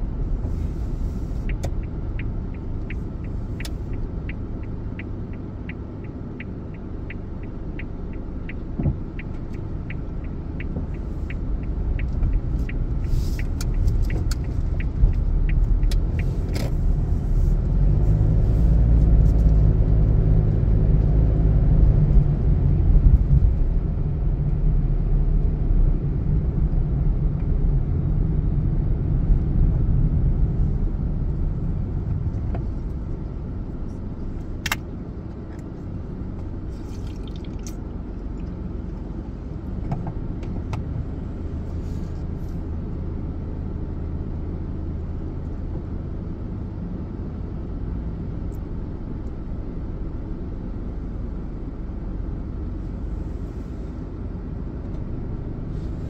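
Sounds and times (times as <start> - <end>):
car engine and road rumble: 0.0 - 56.0
sharp click: 34.6 - 34.9.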